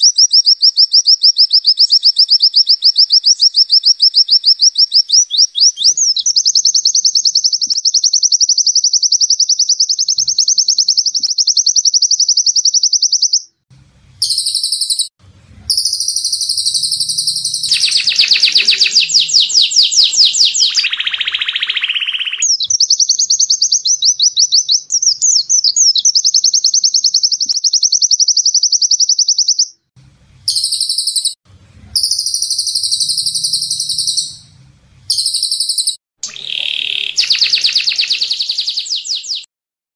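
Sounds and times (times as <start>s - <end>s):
songbird singing rapid trills: 15.7s - 29.8s, 35.1s - 39.5s.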